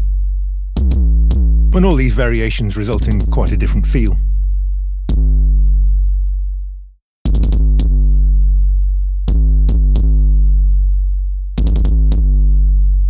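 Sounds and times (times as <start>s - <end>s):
synthesized kick drum booms: 0.0s - 4.2s, 5.0s - 6.0s, 7.3s - 10.5s, 11.6s - 12.6s.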